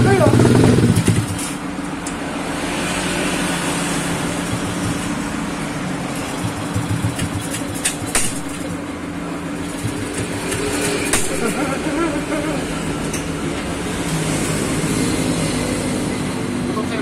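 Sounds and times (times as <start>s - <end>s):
scooter engine idling: 0.0s - 1.4s, 4.2s - 7.8s.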